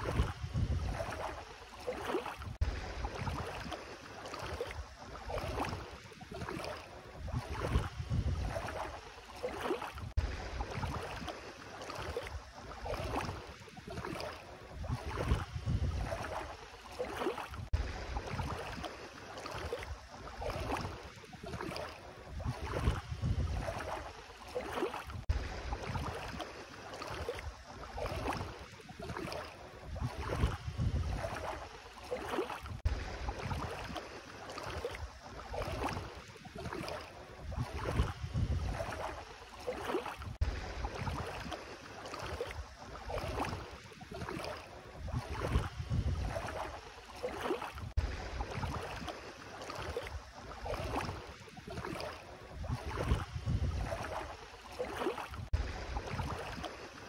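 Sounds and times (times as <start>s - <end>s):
wind rumble on microphone: 0.0s - 1.4s, 2.4s - 3.7s, 4.8s - 9.0s, 9.9s - 11.3s, 12.3s - 16.6s, 17.5s - 18.8s, 19.9s - 24.1s, 25.0s - 26.4s, 29.2s - 31.7s, 32.6s - 34.0s, 35.0s - 39.2s, 40.2s - 41.5s, 42.6s - 46.8s, 47.8s - 49.1s, 50.1s - 54.4s, 55.3s - 56.6s
feet splashing in water: 0.0s - 57.0s.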